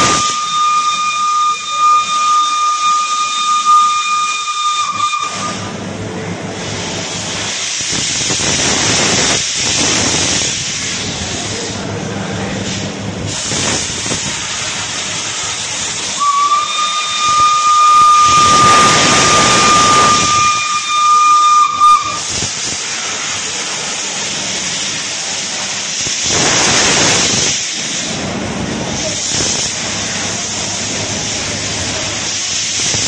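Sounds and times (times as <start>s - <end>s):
steam whistle blowing: 0.0s - 5.8s, 16.0s - 22.6s
steam locomotive venting steam: 0.0s - 33.0s.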